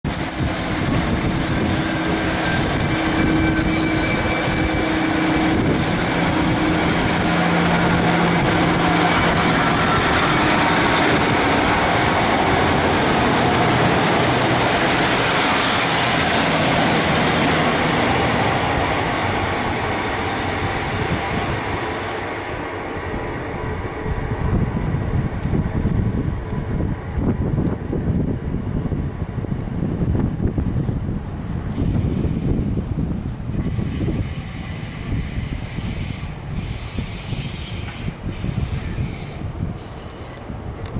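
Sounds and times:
wheels rumbling on rail: 0.0s - 40.9s
train diesel engine: 0.1s - 40.9s.

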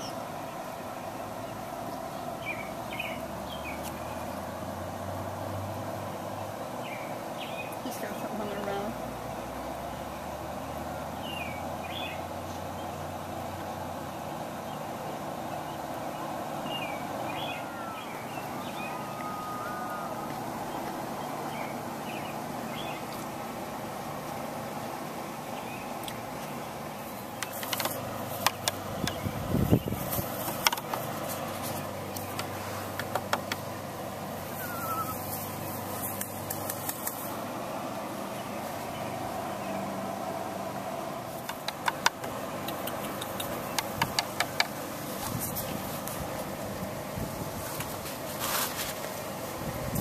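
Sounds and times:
small birds chirping: 0.0s - 4.7s, 6.0s - 9.0s, 9.8s - 47.0s
outdoor background hum: 0.0s - 50.0s
thin steady whistled note: 17.4s - 20.4s, 34.6s - 35.2s
short high chirp: 34.6s - 35.2s
sharp clicks: 36.2s - 37.3s, 41.4s - 44.8s.

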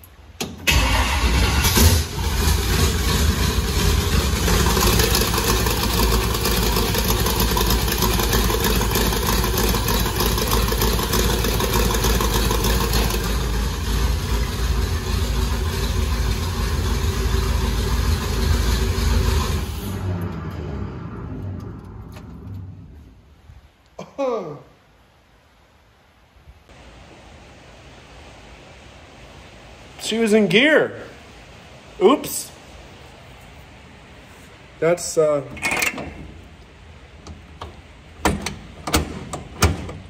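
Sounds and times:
car engine starting: 0.4s - 23.4s
car engine idling: 0.6s - 23.4s.

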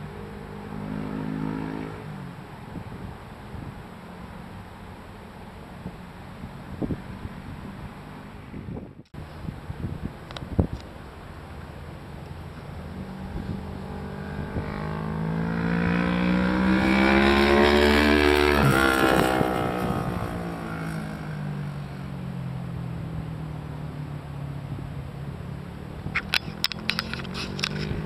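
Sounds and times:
motorcycle engine passing at speed: 0.0s - 3.7s, 12.4s - 28.0s.

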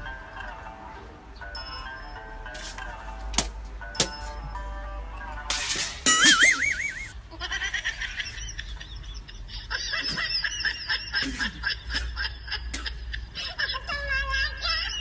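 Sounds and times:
high-pitched laughter: 6.0s - 15.0s.

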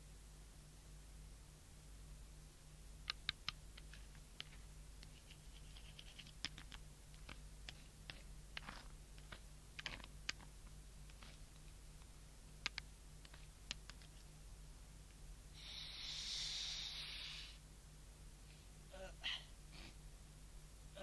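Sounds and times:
low electrical hum: 0.0s - 21.0s
faint clicks and taps: 3.0s - 14.3s.

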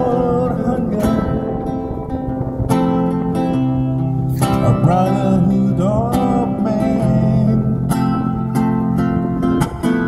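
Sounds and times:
man singing into microphone: 0.0s - 1.7s, 4.4s - 8.3s
guitar strumming chords: 0.0s - 10.0s.

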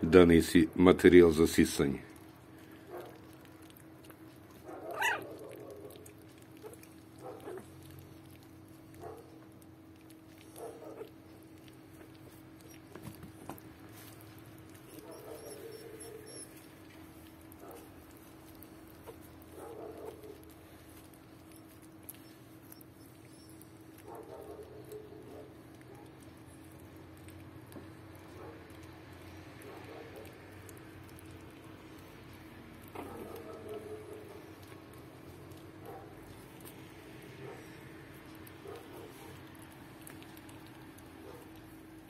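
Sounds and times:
paws scrabbling on blanket: 2.2s - 28.5s, 32.8s - 42.0s
high-pitched puppy squeal: 4.8s - 5.6s, 14.9s - 16.8s, 21.4s - 24.0s
puppies squeaking and whimpering: 4.8s - 5.6s, 12.1s - 13.6s, 14.7s - 17.3s, 20.3s - 24.0s.

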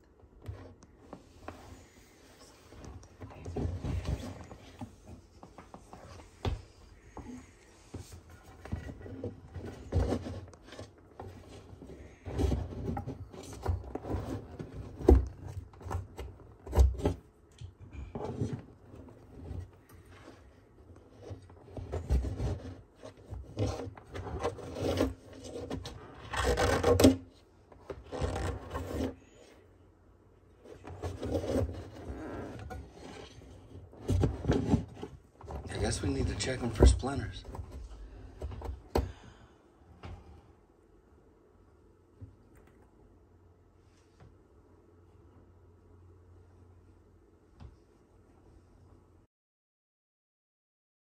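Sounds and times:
tortoise scraping plywood wall: 5.8s - 17.3s, 18.0s - 29.6s, 30.6s - 39.3s.

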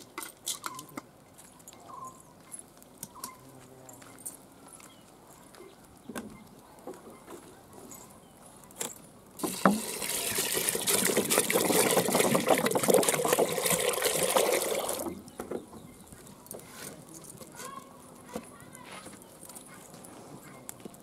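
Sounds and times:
water pouring into metal pot: 9.4s - 15.1s.

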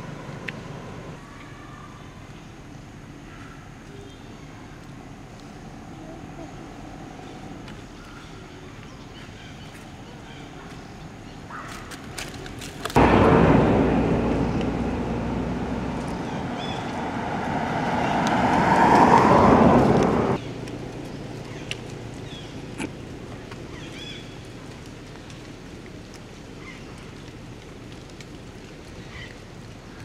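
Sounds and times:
vehicle rushing past: 13.0s - 20.6s.

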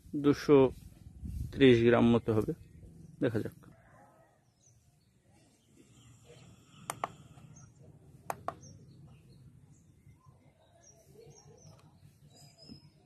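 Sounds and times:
faint bird chirps: 2.6s - 13.0s.

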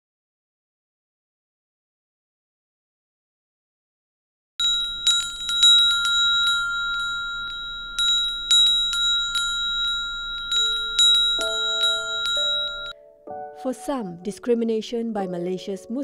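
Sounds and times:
lower ringing tone: 4.6s - 13.0s
small brass bells clanging: 4.6s - 13.0s.

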